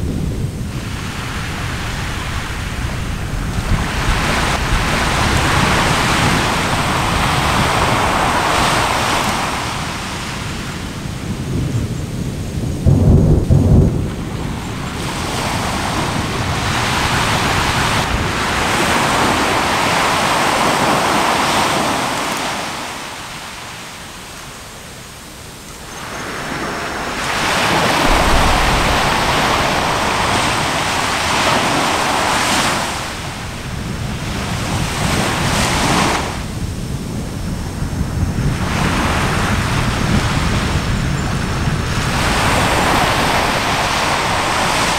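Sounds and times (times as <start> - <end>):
surf washing on shore: 0.0 - 44.9
wind on microphone: 0.0 - 44.9
short low boom: 27.1 - 31.7.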